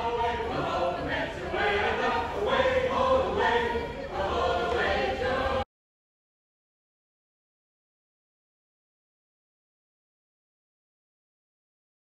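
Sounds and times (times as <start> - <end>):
choir singing: 0.0 - 5.7.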